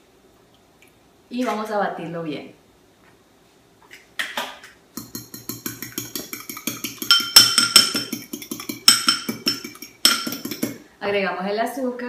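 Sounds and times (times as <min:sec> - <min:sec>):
fork clinking glass bowl: 0:05.0 - 0:10.8.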